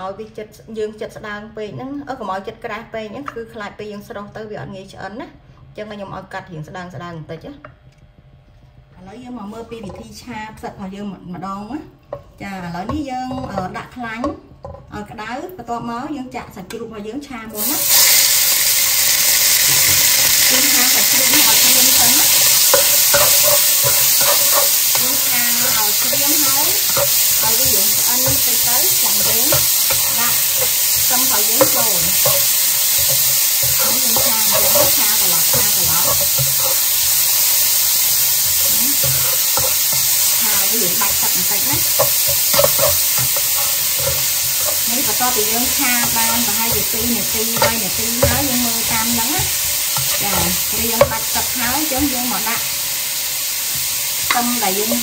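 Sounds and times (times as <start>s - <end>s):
spatula scraping and tapping pan: 12.1s - 15.0s, 19.1s - 52.7s
pork sizzling in hot oil: 17.6s - 55.0s.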